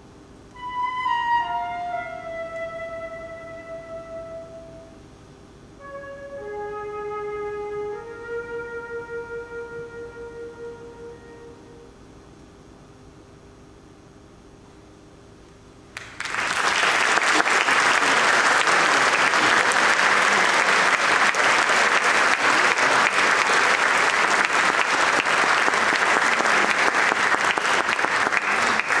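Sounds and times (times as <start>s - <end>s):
audience applauding: 16.0s - 29.0s.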